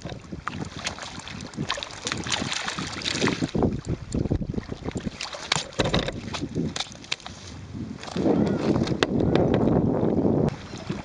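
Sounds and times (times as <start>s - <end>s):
fish splashing in shallow water: 0.0s - 8.7s
wind buffeting microphone: 0.0s - 11.0s.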